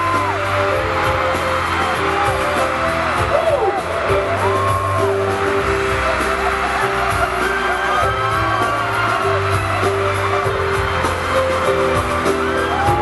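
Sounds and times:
band backing track: 0.0 - 13.0
crowd screaming and cheering: 0.0 - 13.0.

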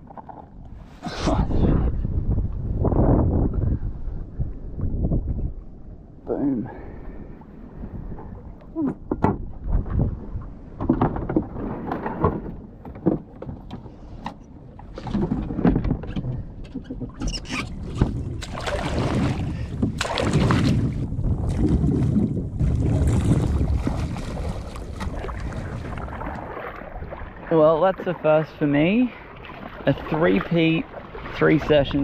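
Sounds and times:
wind buffeting microphone: 0.8 - 12.7, 14.9 - 27.6
water splashing against kayak: 7.1 - 32.0.

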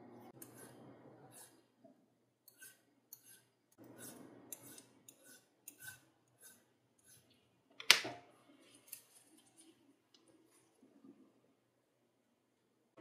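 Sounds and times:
metal tool scraping brass: 2.5 - 7.3.

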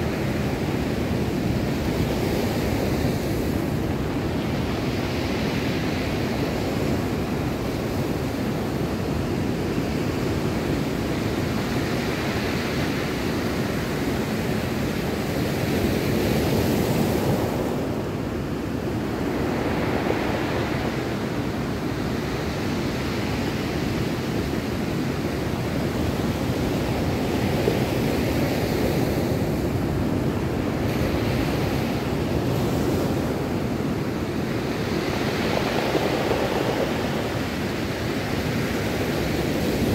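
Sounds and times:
surf breaking on cobble beach: 30.9 - 39.9.

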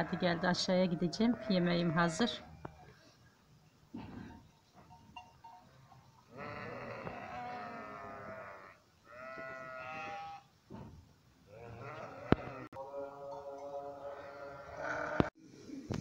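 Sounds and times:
sheep bleating: 0.0 - 2.5, 6.3 - 10.5, 11.5 - 15.3.

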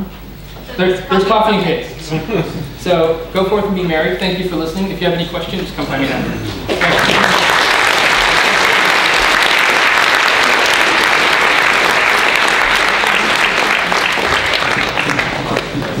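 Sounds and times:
audience applauding: 6.5 - 16.0.

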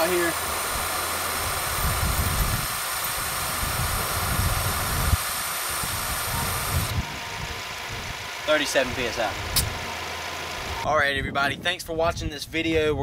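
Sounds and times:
air hissing into tire: 0.0 - 8.5
air compressor rumbling: 0.0 - 11.4.

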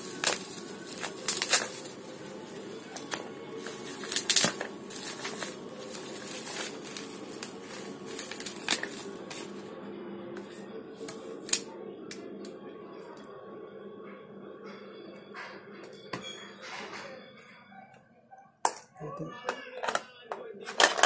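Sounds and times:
plastic packaging crinkling: 0.0 - 9.8.

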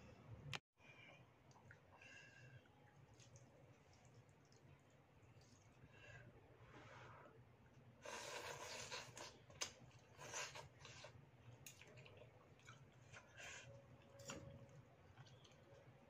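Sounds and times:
person slurping noodles: 8.0 - 9.4.

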